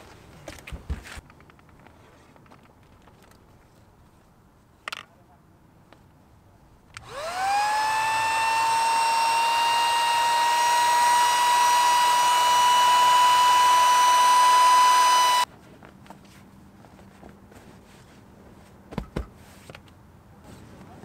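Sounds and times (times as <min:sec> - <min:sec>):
electric air pump motor whining: 0:07.0 - 0:15.5.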